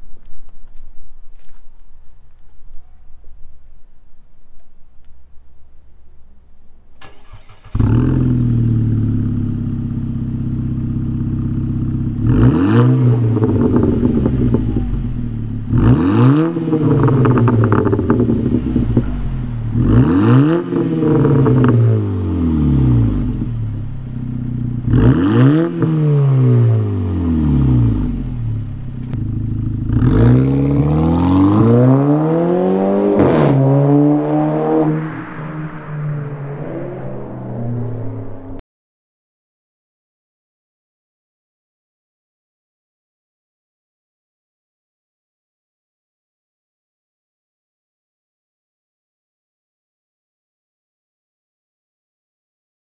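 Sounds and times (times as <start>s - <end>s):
car engine starting and revving: 7.0s - 38.6s.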